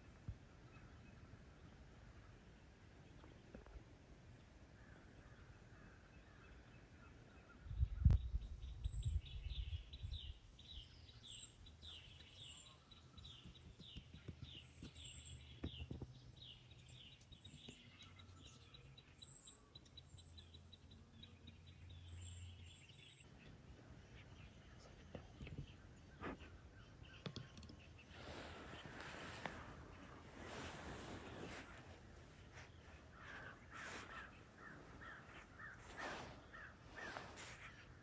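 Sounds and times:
bird chirping: 0:04.4 - 0:38.0
thin high bird calls: 0:04.7 - 0:38.0.

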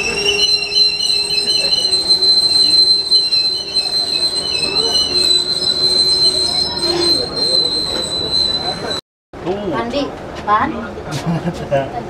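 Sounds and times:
train wheels squealing on rails: 0:00.0 - 0:09.0
wavering squeals: 0:00.0 - 0:09.0.

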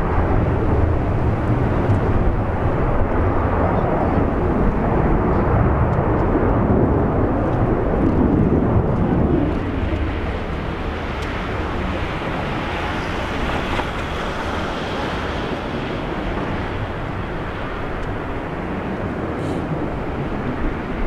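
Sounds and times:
jet engines at takeoff: 0:00.0 - 0:21.0.

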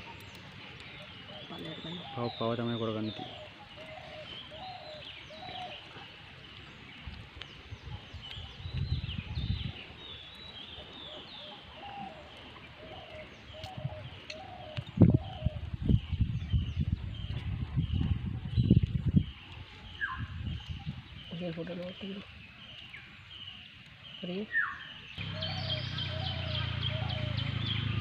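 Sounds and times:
higher bird chirping: 0:00.0 - 0:07.1, 0:07.9 - 0:28.0
bird repeating low call: 0:01.0 - 0:05.8, 0:24.1 - 0:28.0.

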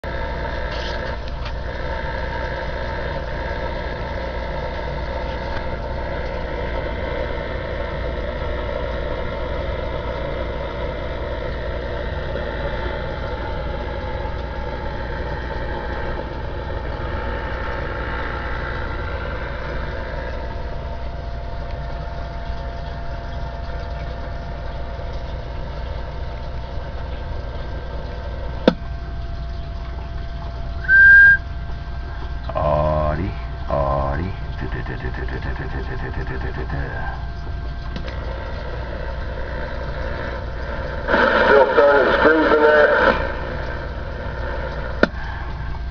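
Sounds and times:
low hum: 0:00.0 - 0:45.9
radio static hiss: 0:32.5 - 0:37.4, 0:38.1 - 0:45.2.

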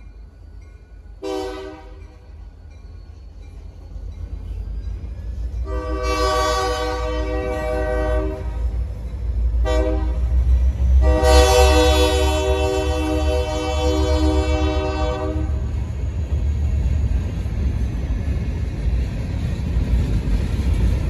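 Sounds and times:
freight train rumble: 0:00.0 - 0:21.0
locomotive air horn blasts: 0:01.2 - 0:02.0, 0:05.6 - 0:08.8, 0:09.6 - 0:15.7.

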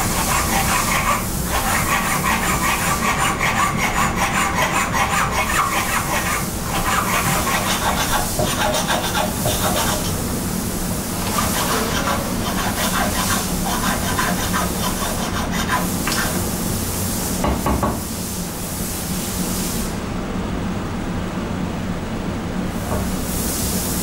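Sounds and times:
rasping on metal: 0:00.0 - 0:10.2, 0:11.4 - 0:16.3.

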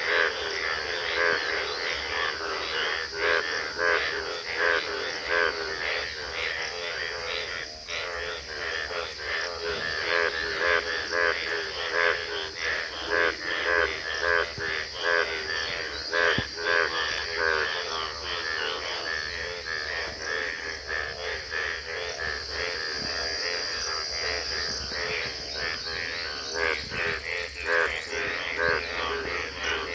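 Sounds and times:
frogs croaking: 0:00.0 - 0:29.9.

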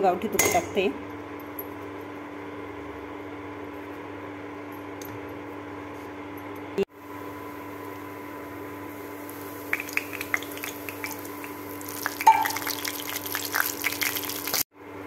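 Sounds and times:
ghee crackling and sizzling in pan: 0:07.2 - 0:14.7.

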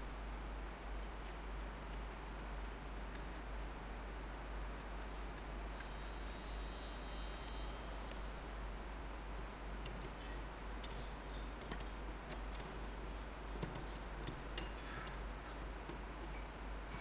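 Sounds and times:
wrench clinking on metal bolt: 0:10.2 - 0:16.4.

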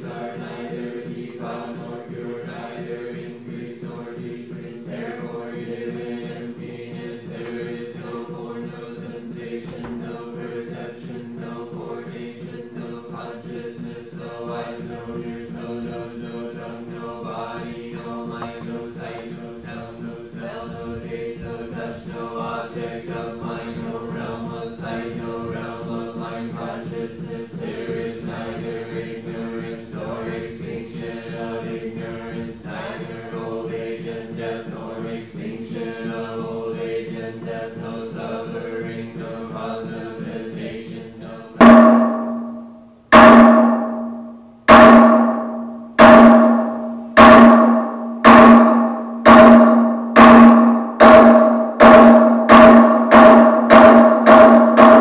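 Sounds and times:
group of voices chanting: 0:00.0 - 0:42.2.

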